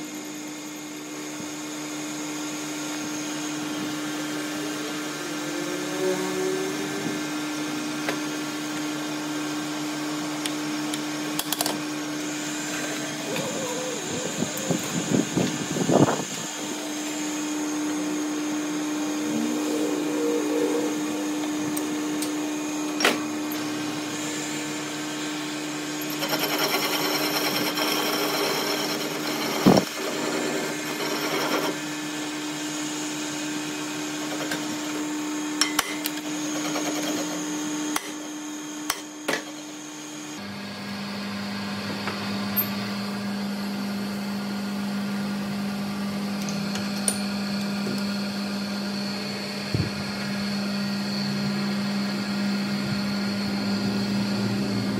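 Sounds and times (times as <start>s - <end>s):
lathe motor hum: 0.1s - 40.5s, 43.0s - 54.9s
metal cutting: 12.2s - 40.3s.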